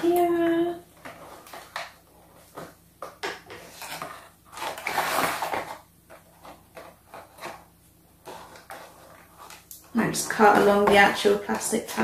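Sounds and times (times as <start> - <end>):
cardboard rustling scrape: 3.5 - 9.7.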